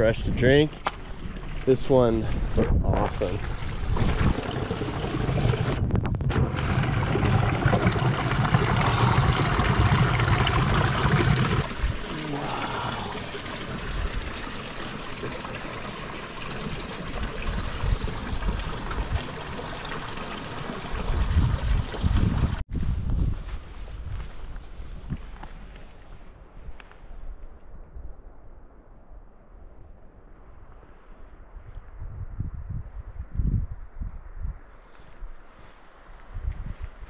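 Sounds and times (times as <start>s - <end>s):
water trickling over pebbles: 1.0s - 22.6s.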